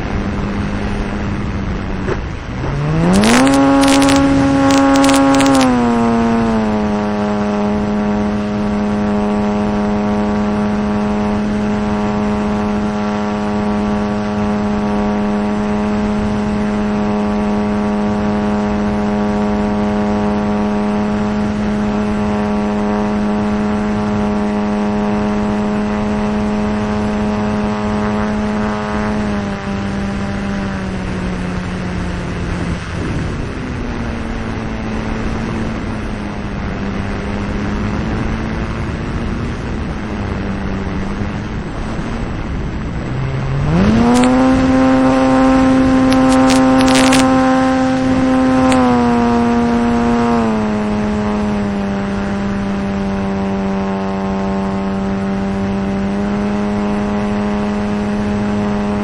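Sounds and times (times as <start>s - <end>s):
model plane engine: 0.0s - 59.0s
sharp clicks and rattles: 2.0s - 5.8s, 43.7s - 44.6s, 46.0s - 47.4s.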